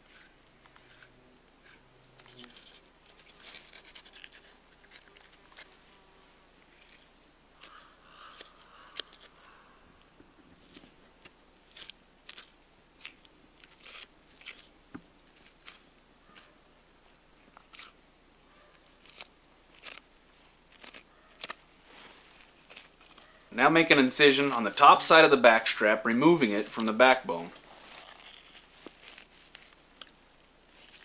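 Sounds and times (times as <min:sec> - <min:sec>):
knife cutting meat: 0:00.0 - 0:05.7, 0:13.0 - 0:14.7.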